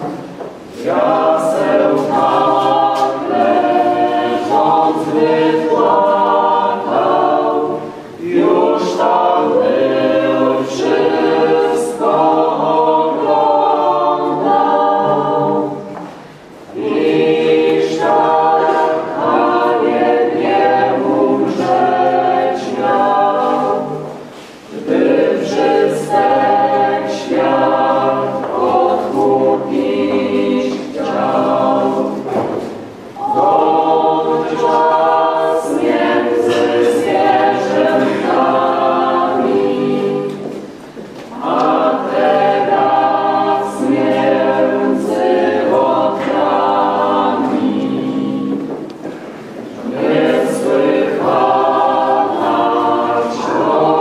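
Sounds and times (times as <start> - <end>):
mixed choir singing: 0.0 - 54.0.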